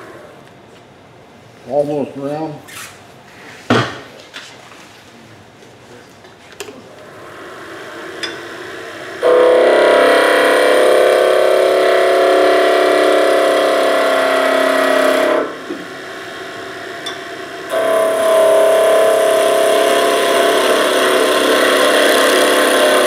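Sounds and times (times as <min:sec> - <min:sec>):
wood lathe running: 0:07.0 - 0:23.0
chisel cutting wood on a lathe: 0:09.2 - 0:23.0.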